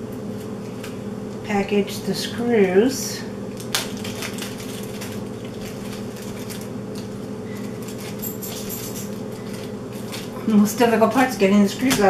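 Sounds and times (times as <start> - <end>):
steady low hum: 0.0 - 12.0
plastic bag crinkling: 3.5 - 10.4.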